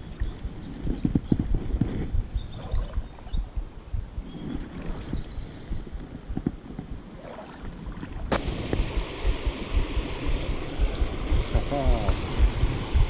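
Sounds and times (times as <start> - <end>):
wind rumbling on microphone: 0.0 - 13.0
river water flowing: 7.1 - 13.0.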